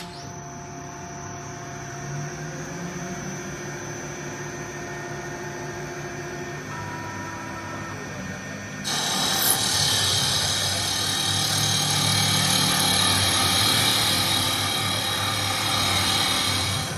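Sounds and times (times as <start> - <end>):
machine low hum: 0.0 - 16.9
lathe cutter cutting wood: 8.8 - 16.9.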